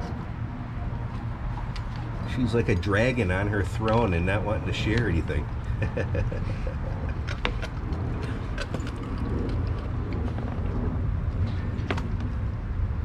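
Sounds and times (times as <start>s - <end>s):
low steady rumble: 0.0s - 13.0s
dogs chewing on bone: 7.0s - 10.7s.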